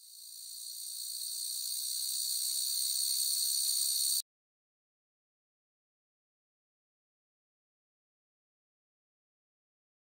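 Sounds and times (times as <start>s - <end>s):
insect chorus: 0.0s - 4.2s.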